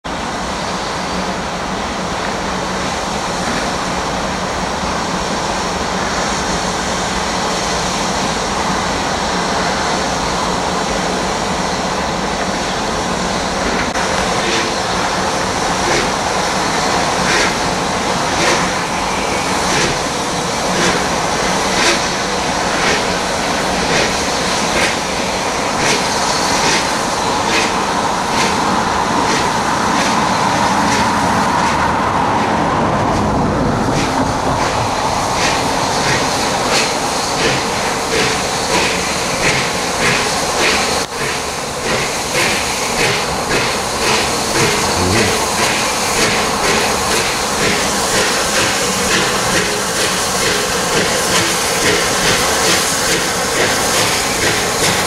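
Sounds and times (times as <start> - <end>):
steam locomotive exhaust beats: 0.1 - 55.0
steam hissing: 0.2 - 31.5, 34.0 - 55.0.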